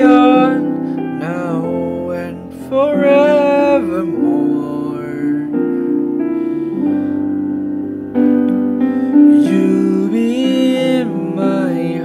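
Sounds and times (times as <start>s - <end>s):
piano chords: 0.0s - 12.0s.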